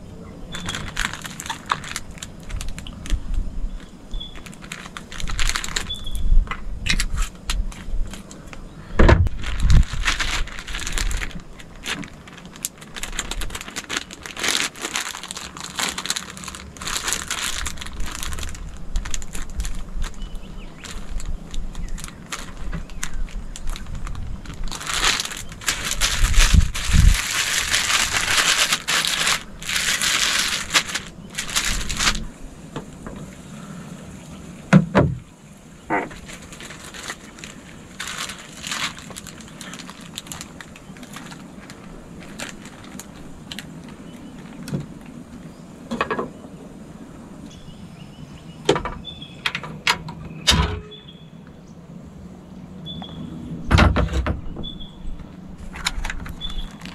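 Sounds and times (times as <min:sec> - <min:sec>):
plastic bag crinkling: 0:00.0 - 0:08.6, 0:09.2 - 0:33.4, 0:36.0 - 0:46.0, 0:55.3 - 0:56.9.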